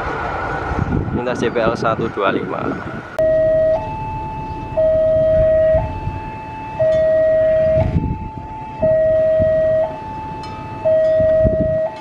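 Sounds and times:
low rumble: 2.8s - 12.0s
two-tone level crossing alarm: 3.2s - 12.0s.

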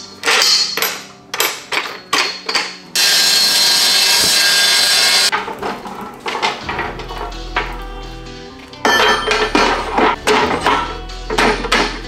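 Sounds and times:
metal clanks and knocks: 0.0s - 4.4s, 5.3s - 7.9s, 8.8s - 12.0s
chop saw cutting steel: 3.0s - 5.3s.

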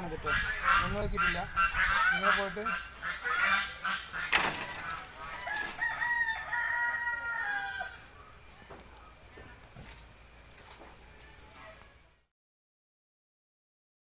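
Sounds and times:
rooster crowing: 5.2s - 8.1s.

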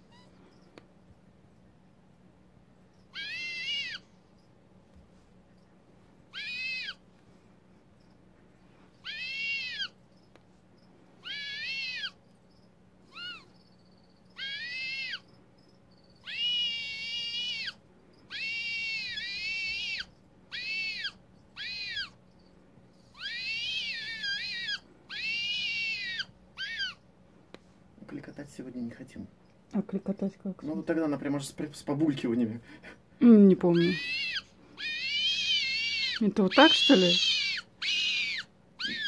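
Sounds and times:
owl calling: 3.1s - 4.1s, 6.3s - 7.0s, 9.0s - 10.0s, 11.2s - 12.2s, 13.1s - 13.6s, 14.3s - 15.3s, 16.2s - 22.2s, 23.2s - 27.0s, 33.8s - 39.0s.

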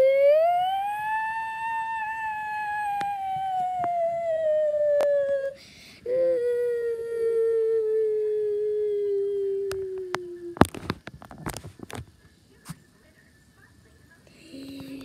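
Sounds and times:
child humming falling note: 0.0s - 10.6s
quick breath: 5.6s - 6.1s.

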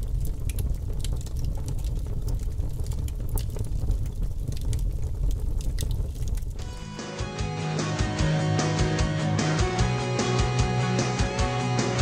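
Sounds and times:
crackles and clicks: 0.0s - 6.9s
low rumble: 0.0s - 7.0s.

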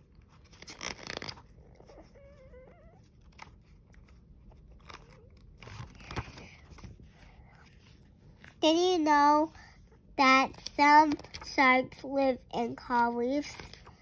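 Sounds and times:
paper pages rustling: 0.0s - 2.2s, 3.0s - 8.6s, 11.0s - 11.6s.

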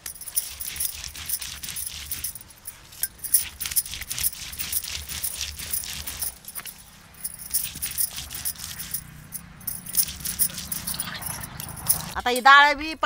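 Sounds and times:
glass bangles jingling: 0.0s - 12.7s.

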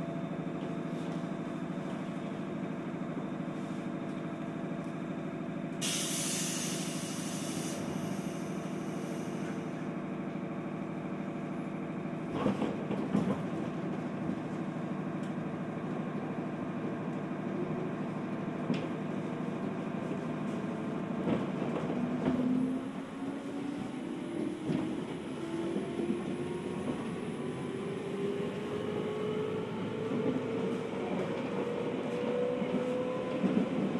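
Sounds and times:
train car hum: 0.0s - 33.9s
hiss: 5.8s - 9.6s.

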